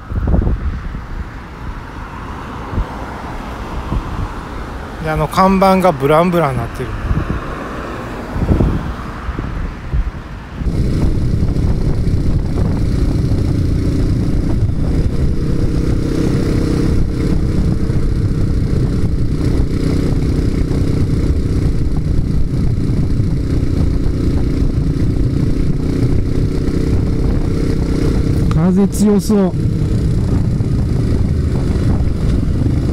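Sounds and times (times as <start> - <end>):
wind noise on microphone: 0.0 - 32.9
motorcycle engine running: 10.6 - 32.9.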